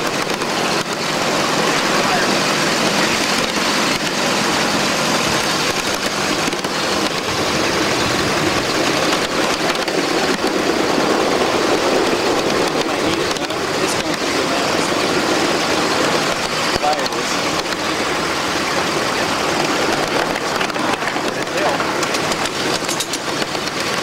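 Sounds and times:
steam locomotive running: 0:00.0 - 0:24.0
scattered clicks: 0:05.4 - 0:10.6, 0:12.4 - 0:14.9, 0:19.9 - 0:24.0.

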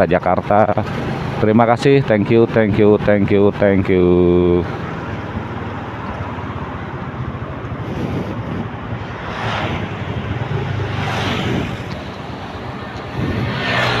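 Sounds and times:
motorcycle engine and road drone: 0:00.0 - 0:14.0
wind rushing over microphone: 0:04.7 - 0:14.0.

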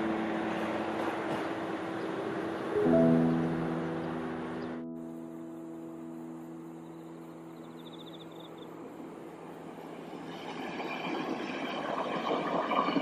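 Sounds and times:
train wheels rumbling on rails: 0:00.0 - 0:02.7, 0:09.0 - 0:13.0
held music notes: 0:00.0 - 0:07.8.

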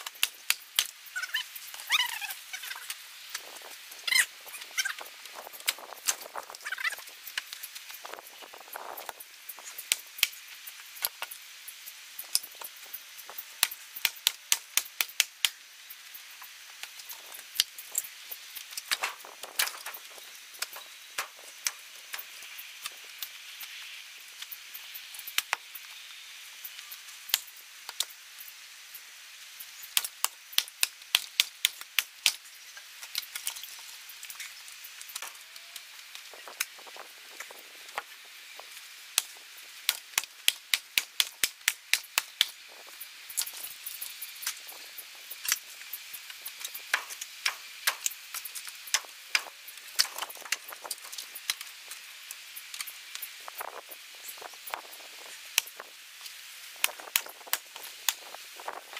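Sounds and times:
firewood splitting cracks: 0:13.3 - 0:15.6, 0:16.8 - 0:23.3, 0:29.8 - 0:35.4, 0:39.2 - 0:42.6, 0:46.3 - 0:52.0.

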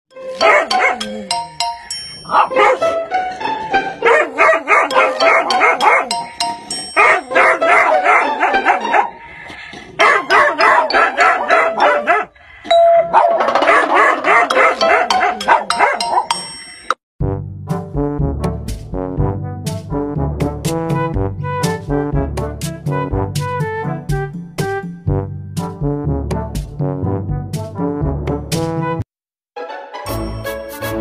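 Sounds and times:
music with chime-like notes: 0:00.2 - 0:03.7, 0:05.0 - 0:07.9, 0:30.0 - 0:31.0
small dog barking: 0:04.0 - 0:06.1, 0:07.0 - 0:09.0, 0:10.0 - 0:12.3, 0:13.2 - 0:16.2.

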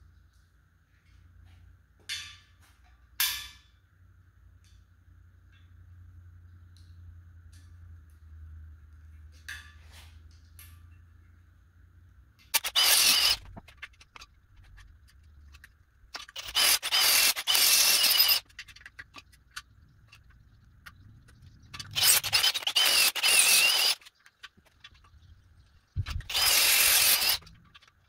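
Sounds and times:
cordless drill boring into metal: 0:12.6 - 0:13.5, 0:16.2 - 0:18.4, 0:21.9 - 0:24.1, 0:26.1 - 0:27.5
drill bit squealing: 0:12.6 - 0:13.5, 0:16.3 - 0:18.5, 0:21.8 - 0:24.2, 0:26.1 - 0:27.8.

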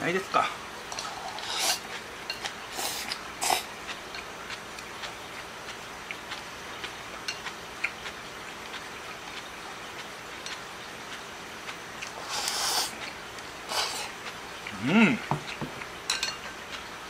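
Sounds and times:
chewing: 0:00.9 - 0:17.0
person slurping noodles: 0:01.0 - 0:01.9, 0:02.7 - 0:03.7, 0:12.2 - 0:13.0, 0:13.7 - 0:14.2.

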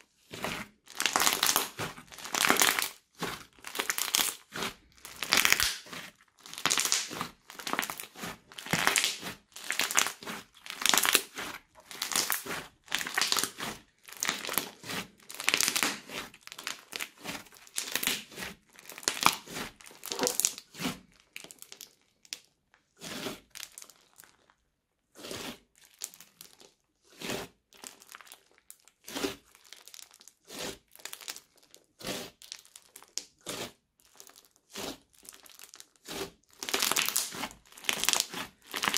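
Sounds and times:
crunchy slime crackling and popping: 0:00.2 - 0:38.9.

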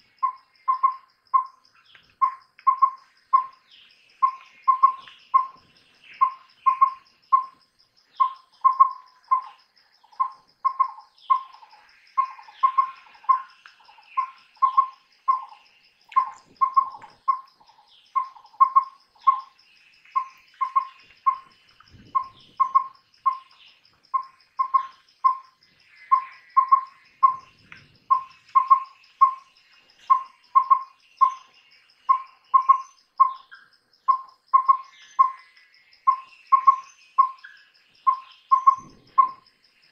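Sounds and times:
faint insect trill: 0:00.0 - 0:39.9
owl whistled toots: 0:00.2 - 0:01.5, 0:04.2 - 0:05.6, 0:06.2 - 0:07.5, 0:08.2 - 0:09.5, 0:14.2 - 0:17.4, 0:22.1 - 0:23.6, 0:26.1 - 0:27.5, 0:28.1 - 0:29.4, 0:30.1 - 0:31.5, 0:32.1 - 0:35.4, 0:36.1 - 0:39.4.

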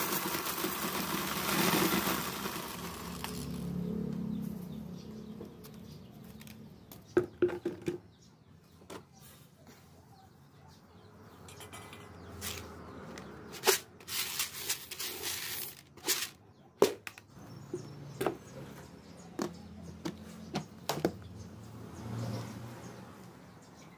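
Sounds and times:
corn kernels rattling in a bucket: 0:00.0 - 0:04.0, 0:13.5 - 0:16.4
plastic bucket knocks and clicks: 0:07.2 - 0:08.0.

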